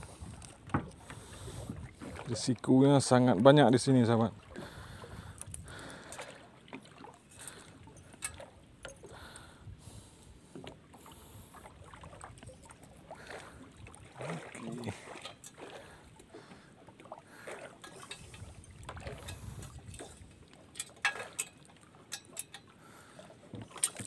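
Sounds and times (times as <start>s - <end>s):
water lapping around boat: 0.0s - 24.0s
clicks and knocks of fishing line handling: 0.2s - 1.3s, 7.3s - 9.5s, 17.8s - 22.7s, 23.5s - 24.0s.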